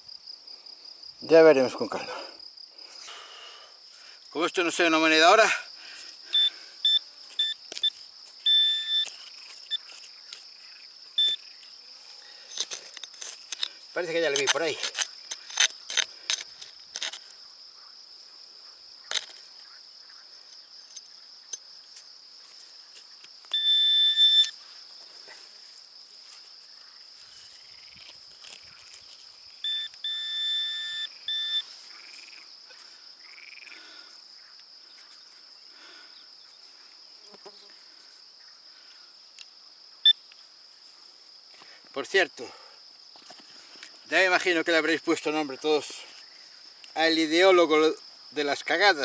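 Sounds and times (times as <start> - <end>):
crickets chirring: 0.0 - 49.0
metal detector buzzing: 6.4 - 10.0, 11.2 - 11.4, 23.4 - 24.6, 29.6 - 31.7
trowel scraping in earth: 12.0 - 17.3.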